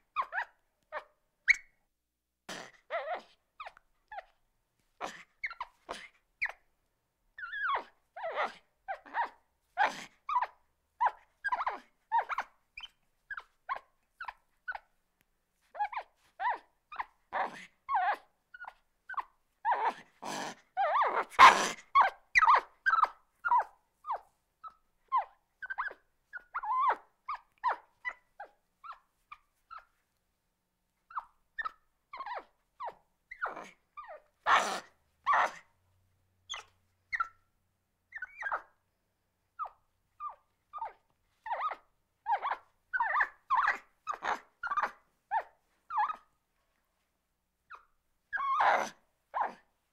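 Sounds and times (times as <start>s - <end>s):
monkey squeaking and chirping: 1.5s - 1.7s, 10.3s - 14.8s, 15.8s - 19.8s, 20.8s - 28.2s, 36.5s - 37.3s, 38.1s - 38.7s, 39.6s - 46.2s.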